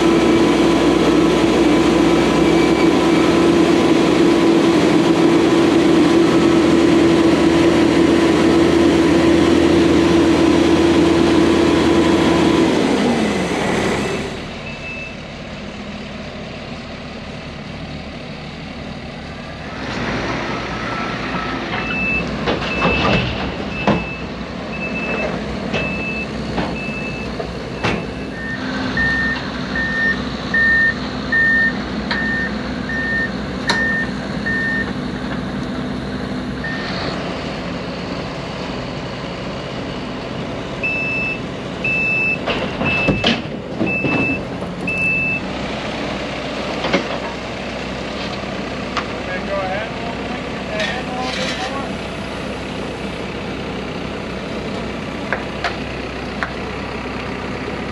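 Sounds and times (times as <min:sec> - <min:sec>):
heavy machine engine running: 0:00.0 - 0:57.9
backup alarms beeping: 0:14.6 - 0:15.2, 0:21.8 - 0:34.9, 0:40.8 - 0:43.3, 0:43.9 - 0:45.5.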